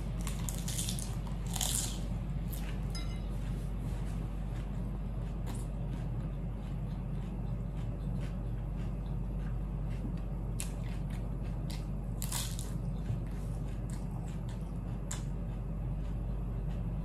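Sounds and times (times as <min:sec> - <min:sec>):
crunchy bite of cucumber: 0:00.0 - 0:02.8, 0:07.7 - 0:15.3
low hum: 0:00.0 - 0:17.0
mouth chewing food: 0:00.0 - 0:17.0.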